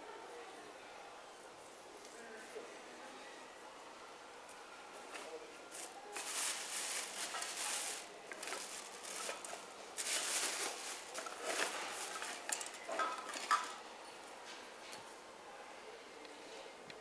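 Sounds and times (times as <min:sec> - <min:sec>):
plastic bag rustling: 0:05.7 - 0:13.8.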